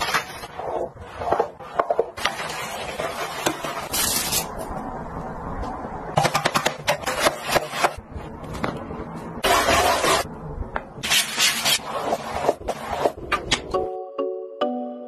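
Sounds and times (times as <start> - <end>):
brush scrubbing wet tiles: 0.0 - 4.4.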